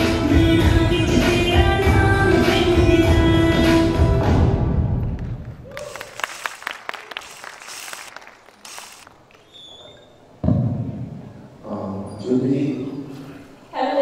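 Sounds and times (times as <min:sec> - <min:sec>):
audience clapping: 0:05.0 - 0:09.5.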